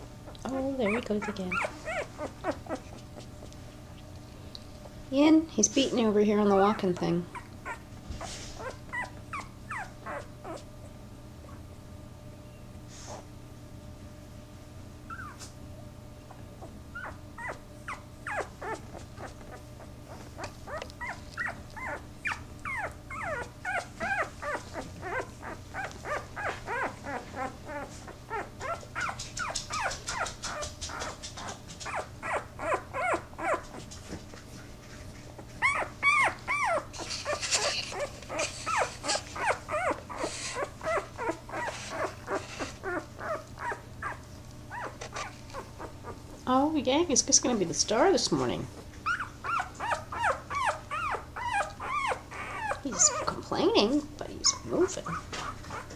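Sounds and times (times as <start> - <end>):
puppy whining and squeaking: 0.3 - 3.5, 6.4 - 10.7, 15.1 - 15.6, 16.3 - 33.9, 35.4 - 46.5, 49.0 - 53.9, 54.5 - 55.9.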